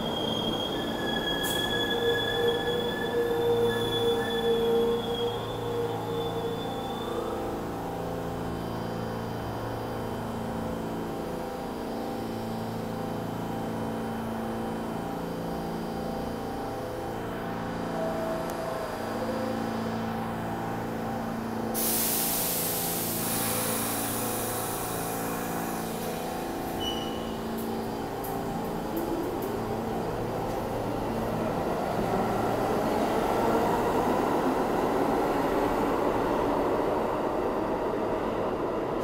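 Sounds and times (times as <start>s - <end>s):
subway train humming: 0.0s - 39.0s
air brakes hissing: 21.7s - 27.4s.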